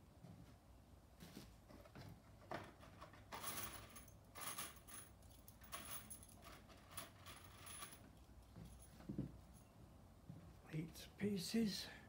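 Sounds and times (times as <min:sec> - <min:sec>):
metal screws rattling in a box: 0:02.6 - 0:08.9.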